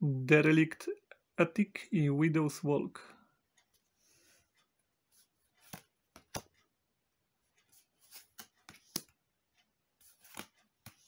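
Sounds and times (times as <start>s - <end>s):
cards flicking and rustling: 5.2s - 6.7s, 7.6s - 9.2s, 10.0s - 11.0s.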